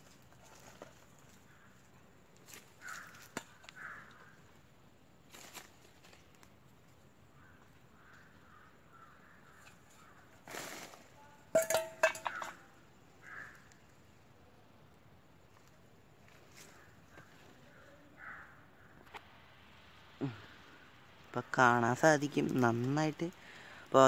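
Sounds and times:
metal bowl clattering: 0:11.5 - 0:12.7.

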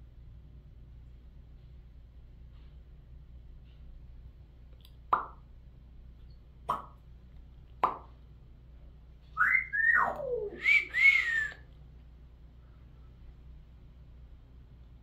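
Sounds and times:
parrot whistling: 0:09.4 - 0:11.6.

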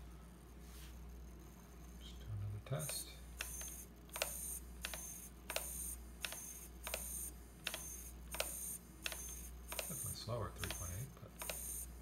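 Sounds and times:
servo clicking and whining: 0:02.8 - 0:12.0.

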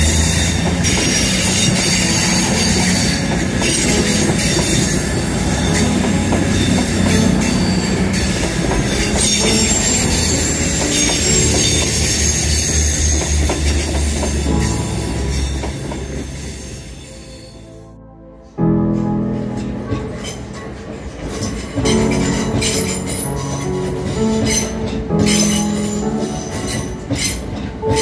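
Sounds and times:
wheels squealing on rails: 0:00.0 - 0:17.8, 0:20.0 - 0:28.0
train diesel engines humming: 0:00.0 - 0:18.6, 0:19.2 - 0:28.0.

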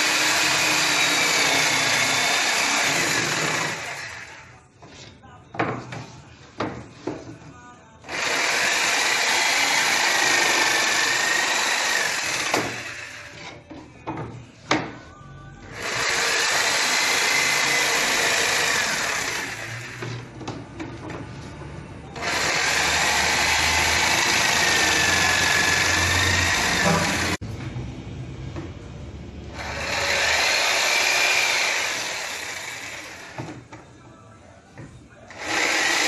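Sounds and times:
jigsaw cutting board: 0:00.0 - 0:04.4, 0:08.1 - 0:13.5, 0:15.8 - 0:20.3, 0:22.2 - 0:27.4, 0:29.6 - 0:33.5, 0:35.3 - 0:36.0.

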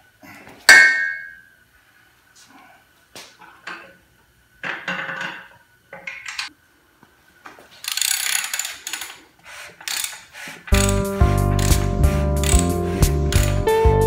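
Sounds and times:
metal clicks and rattling: 0:09.8 - 0:11.8, 0:12.4 - 0:13.7.

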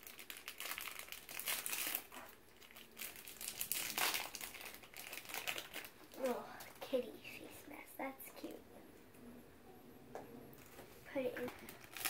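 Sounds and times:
wrapper crinkling: 0:00.0 - 0:07.0, 0:10.6 - 0:12.0.

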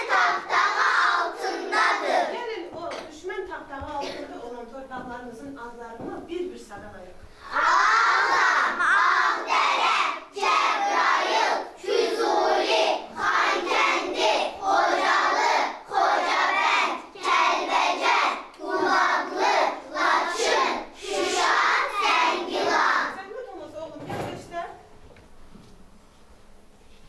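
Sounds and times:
children reciting in unison: 0:00.0 - 0:02.5, 0:07.4 - 0:23.2.

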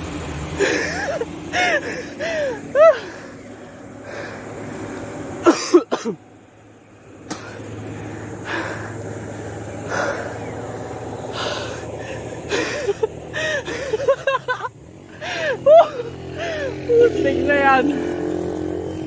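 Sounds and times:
heavy breathing: 0:00.6 - 0:04.7, 0:07.4 - 0:10.6, 0:11.2 - 0:14.0, 0:15.1 - 0:15.6, 0:16.4 - 0:16.8.

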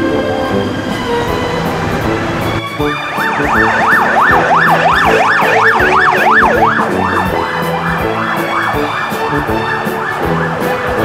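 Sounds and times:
ambulance siren yelping: 0:02.1 - 0:11.0.

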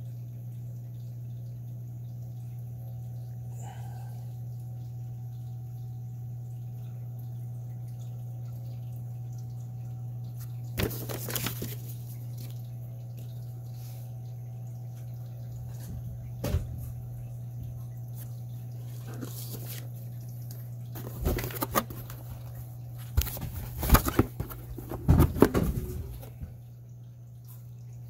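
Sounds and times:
steady low hum: 0:00.0 - 0:28.0
paper pages rustling: 0:10.8 - 0:12.6, 0:18.9 - 0:20.0, 0:21.0 - 0:26.3.

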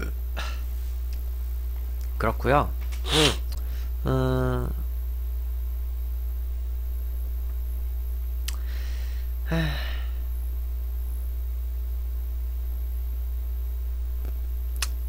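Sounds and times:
steady low hum: 0:00.0 - 0:15.0
man sighing: 0:00.4 - 0:00.7, 0:03.1 - 0:04.8, 0:08.5 - 0:10.3
small click: 0:08.4 - 0:08.6, 0:14.2 - 0:15.0.

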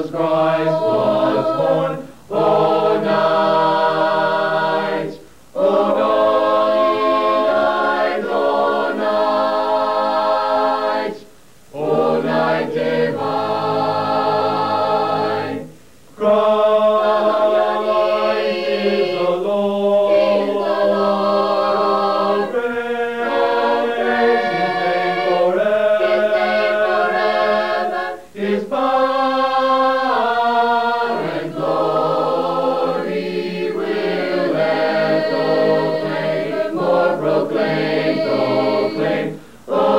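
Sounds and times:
a cappella choir singing: 0:00.0 - 0:39.9.

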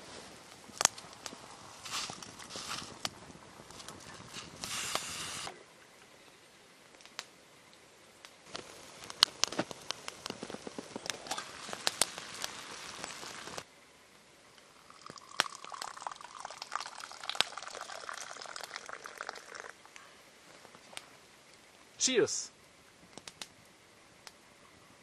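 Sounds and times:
fire crackling: 0:00.0 - 0:06.1, 0:06.7 - 0:24.5
water boiling hard: 0:00.8 - 0:05.5, 0:08.5 - 0:13.6, 0:14.7 - 0:19.8
liquid pouring: 0:14.7 - 0:19.8.

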